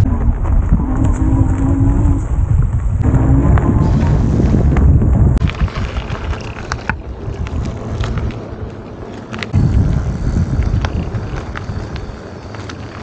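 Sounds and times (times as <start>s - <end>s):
wind buffeting microphone: 0.0s - 13.0s
sharp clicks and rattles: 4.8s - 13.0s.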